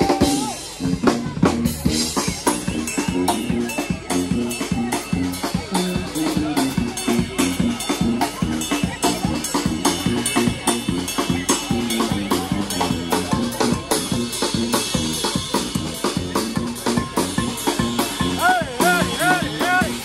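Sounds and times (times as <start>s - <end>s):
brass band playing upbeat tune: 0.0s - 20.0s
drum beat: 0.0s - 20.0s
sousaphone bass riff: 0.0s - 20.0s.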